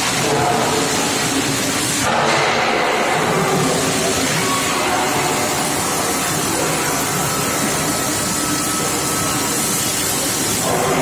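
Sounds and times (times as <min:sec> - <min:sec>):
industrial hissing din: 0:00.0 - 0:11.0.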